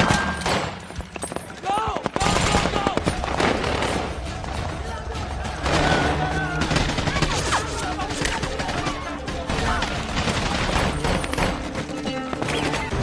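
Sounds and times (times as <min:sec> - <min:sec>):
rifle and machine-gun fire: 0:02.0 - 0:04.2, 0:05.6 - 0:11.8.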